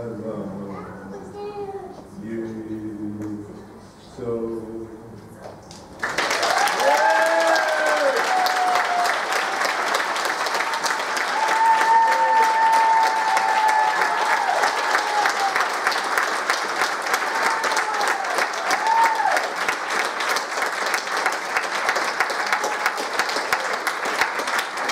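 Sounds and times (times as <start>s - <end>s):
audience applauding: 6.0s - 24.9s.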